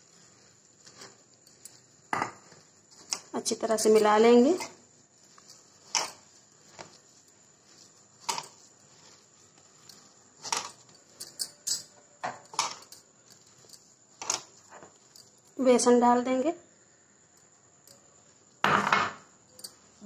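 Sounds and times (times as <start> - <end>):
hand mixing crumbs in plastic bowl: 0.0 - 11.6, 12.4 - 16.0.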